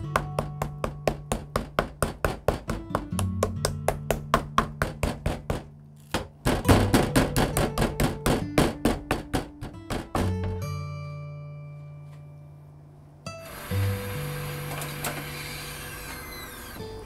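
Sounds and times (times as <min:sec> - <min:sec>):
mallet pounding meat on wooden board: 0:00.1 - 0:10.5.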